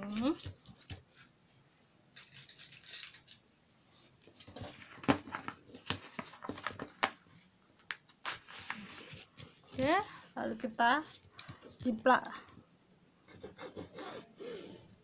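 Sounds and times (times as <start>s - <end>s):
paper and fabric rustling: 0.0s - 1.3s, 2.1s - 3.4s, 4.0s - 12.2s.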